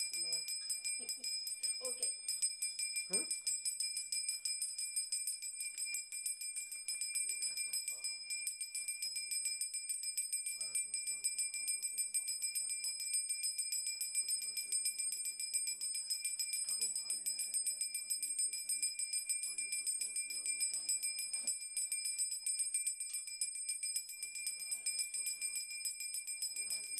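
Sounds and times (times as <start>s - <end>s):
hand bell ringing rapidly: 0.0s - 26.9s
man chanting prayers: 3.1s - 3.4s, 6.9s - 8.2s, 10.6s - 13.1s, 14.1s - 21.5s, 26.5s - 26.9s.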